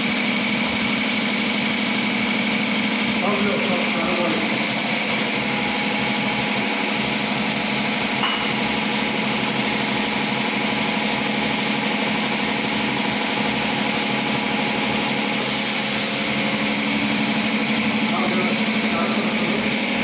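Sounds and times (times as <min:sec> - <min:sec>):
machinery hum and whir: 0:00.0 - 0:20.0.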